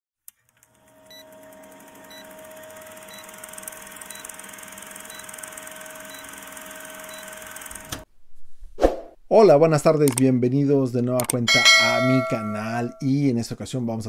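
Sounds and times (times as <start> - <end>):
film projector clatter: 0.3 - 8.1.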